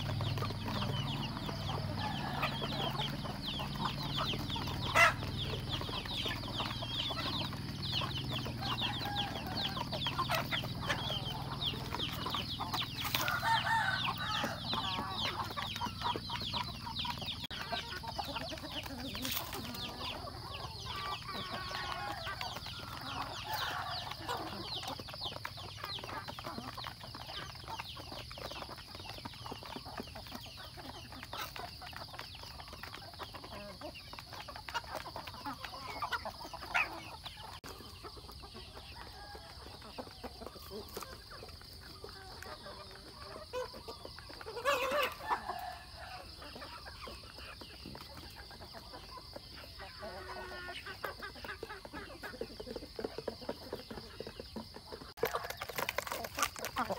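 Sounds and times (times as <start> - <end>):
chickens clucking and calling: 0.0 - 56.9.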